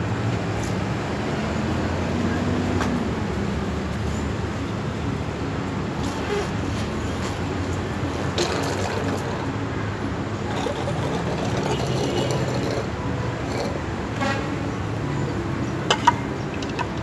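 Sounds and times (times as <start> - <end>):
child blowing water through hose: 8.3 - 9.4, 10.4 - 13.8.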